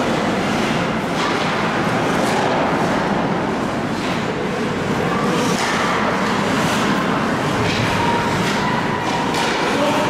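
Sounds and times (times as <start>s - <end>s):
reverberant din of hockey game: 0.0s - 10.0s
skates scraping ice: 5.3s - 10.0s.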